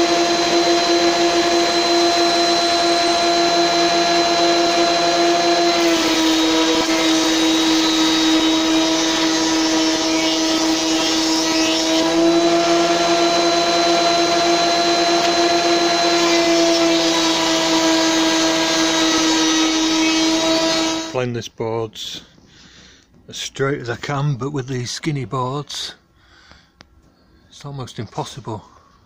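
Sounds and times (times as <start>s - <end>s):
thickness planer motor whine: 0.0s - 21.2s.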